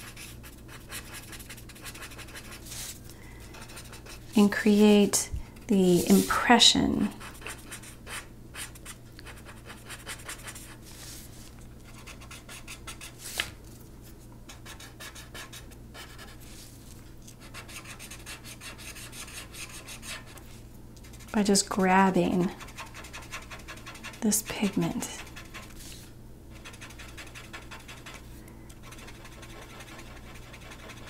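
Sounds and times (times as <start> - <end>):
marker scratching on paper: 0.0 - 2.9, 3.5 - 5.0, 5.7 - 6.5, 7.1 - 11.2, 11.9 - 13.1, 17.4 - 20.4, 22.4 - 26.0, 26.6 - 31.0.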